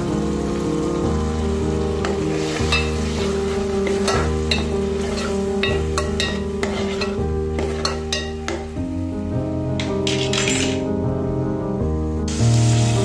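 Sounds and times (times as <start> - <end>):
background music with held notes: 0.0 - 13.0
light sizzle: 0.0 - 13.0
spoon clinking against pot: 2.0 - 3.0, 3.8 - 8.7, 9.8 - 10.9
spoon scraping a pot: 2.6 - 8.6.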